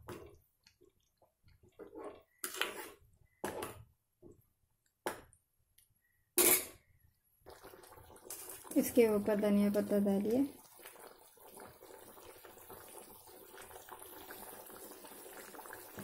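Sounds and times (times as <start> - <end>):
spoon scraping and knocking pot: 1.8 - 3.8.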